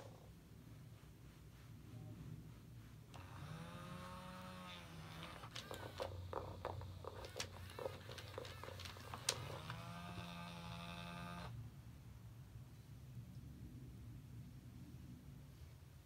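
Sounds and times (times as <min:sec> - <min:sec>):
toy mechanism clicks and squeaks: 0:03.2 - 0:10.8.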